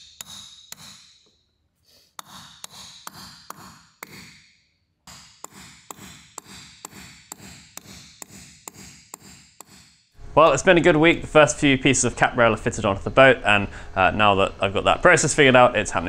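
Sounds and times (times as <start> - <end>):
mallet striking caulking iron: 0.0 - 1.4, 2.2 - 10.1.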